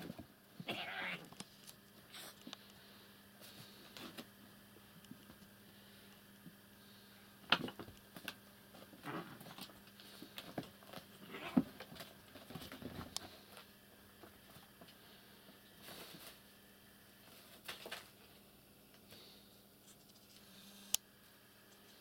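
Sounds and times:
cats tussling on carpet: 7.7s - 19.4s.

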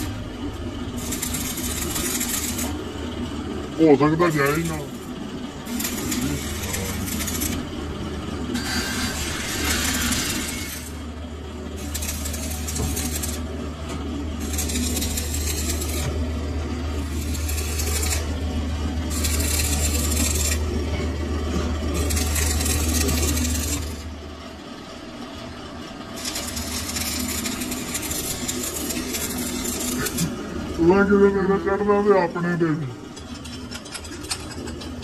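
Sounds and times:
steady low hum: 0.0s - 35.0s
welding arc crackling: 0.9s - 2.8s, 4.3s - 7.7s, 11.8s - 13.5s, 14.4s - 16.3s, 17.0s - 20.7s, 21.9s - 24.0s, 26.2s - 30.5s.

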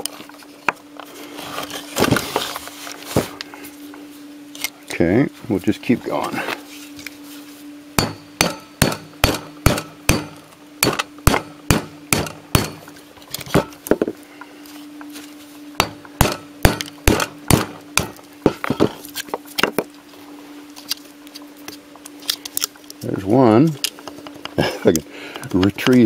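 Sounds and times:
hammer striking steel: 8.0s - 12.8s, 15.8s - 19.0s.

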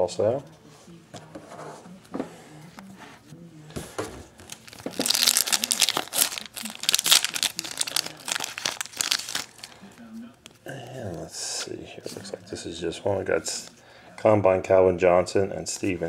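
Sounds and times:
foil wrapper crinkling and tearing: 4.4s - 9.8s.

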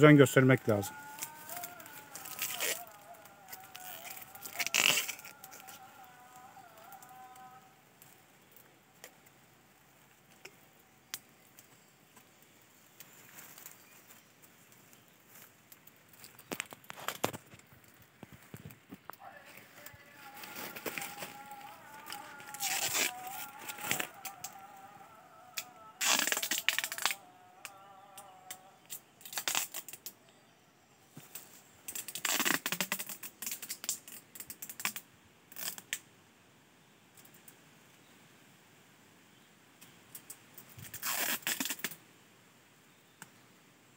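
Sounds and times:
soft rustle of plastic tape: 0.4s - 24.7s, 25.5s - 27.2s, 28.8s - 30.2s, 31.2s - 36.0s, 39.8s - 42.0s.

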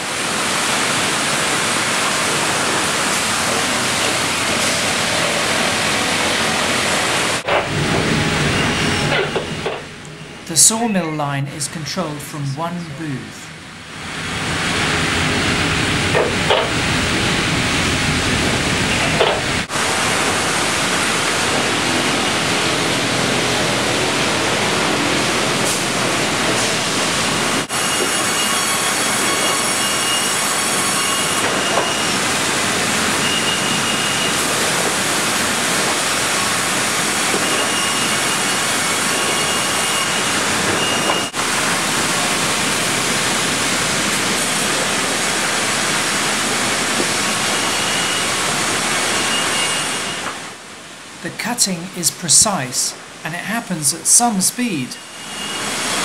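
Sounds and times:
sawmill machinery din: 0.0s - 50.6s
short high-pitched whines: 7.4s - 11.0s, 46.7s - 50.6s, 54.9s - 56.0s.

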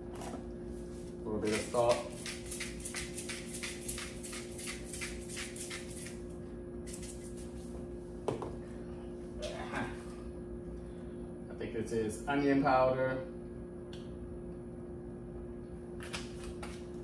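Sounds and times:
pepper rattling in shaker: 1.5s - 6.2s, 6.9s - 7.5s.

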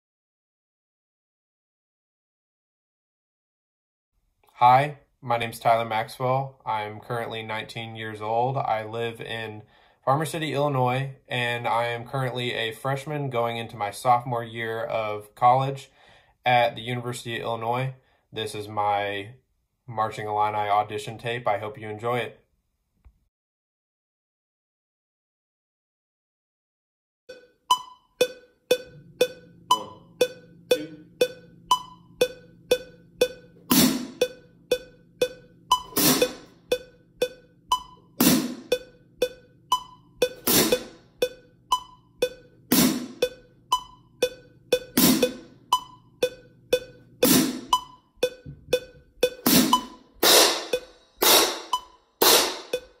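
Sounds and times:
metronome clicking: 27.3s - 53.0s.

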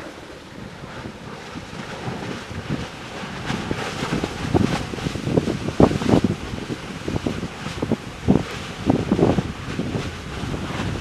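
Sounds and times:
lava churning and spattering: 0.0s - 11.0s
wind buffeting microphone: 0.0s - 11.0s.

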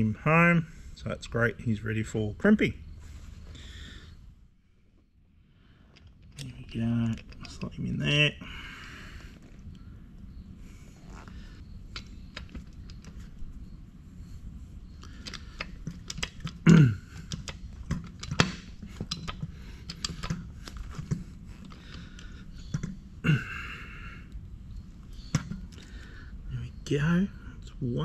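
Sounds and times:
cable handling clicks and knocks: 15.0s - 16.6s, 17.2s - 23.0s.

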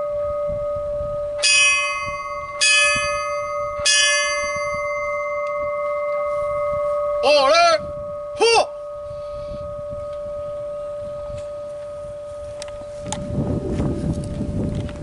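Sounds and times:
horn-like blast wavering pitch: 0.0s - 14.0s
long steady hum: 0.0s - 15.0s
bell struck by hand: 1.4s - 7.2s.

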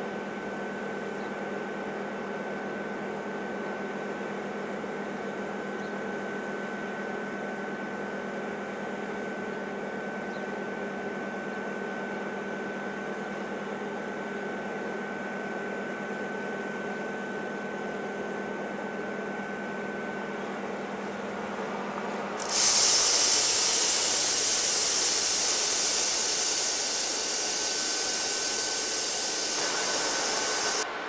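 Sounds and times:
freight train hum: 22.3s - 31.0s
loud hiss: 22.4s - 30.8s.

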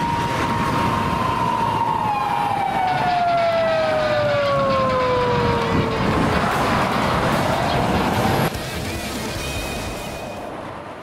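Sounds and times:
police siren wailing: 0.0s - 8.6s
road noise: 0.0s - 11.0s.

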